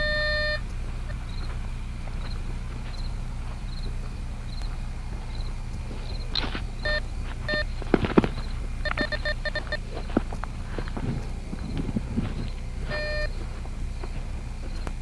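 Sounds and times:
metal detector beeping: 0.0 - 1.5, 6.2 - 10.2, 11.6 - 13.5
footsteps crunching through leaves: 0.8 - 8.8, 9.6 - 15.0.

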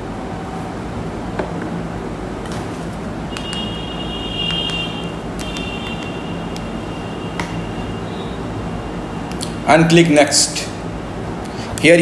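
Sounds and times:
low background hum: 0.0 - 12.0
high-pitched whine: 3.3 - 10.0
sharp clicks: 4.5 - 6.7.

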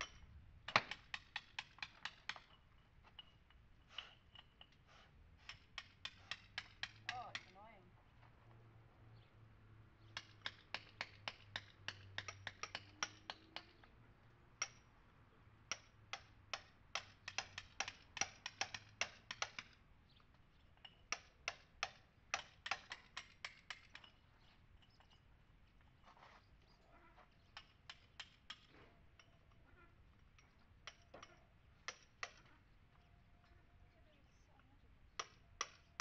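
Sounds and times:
hammer tapping chisel on stone: 5.4 - 7.5, 10.1 - 13.9, 14.6 - 14.8, 15.7 - 19.8, 20.8 - 24.2, 27.4 - 29.3, 30.8 - 32.5, 35.2 - 36.0.

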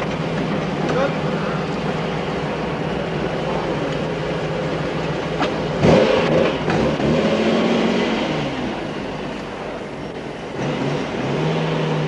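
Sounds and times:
sports car engine idling: 0.0 - 7.1, 8.4 - 10.6.

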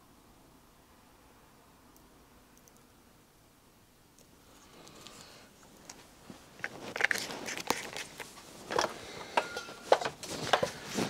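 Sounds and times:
hands handling small hard items: 5.8 - 11.0.

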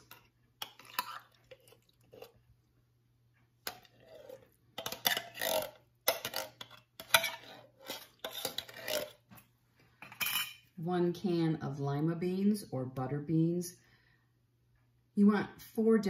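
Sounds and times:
spoon scraping tin can: 0.0 - 2.4, 3.7 - 9.3.

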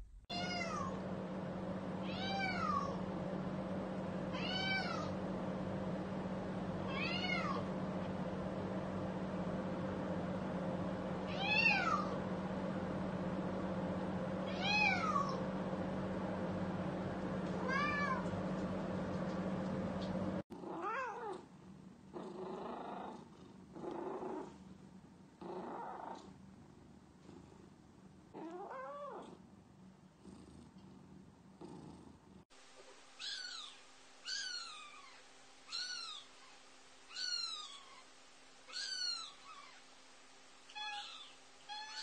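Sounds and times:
steady hum: 0.0 - 20.4
cats meowing: 40.7 - 42.0.

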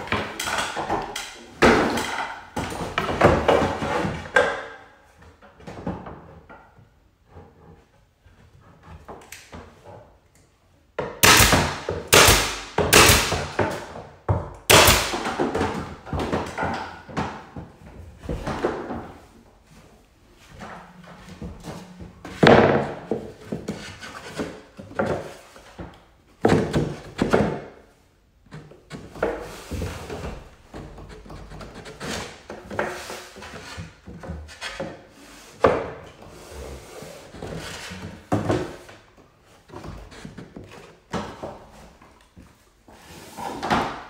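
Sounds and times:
molding scraping and rubbing: 28.4 - 43.8.

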